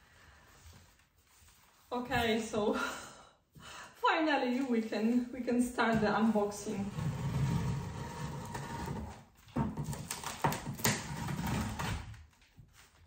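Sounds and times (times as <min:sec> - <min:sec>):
tape and cardboard crackling: 0:08.4 - 0:13.0.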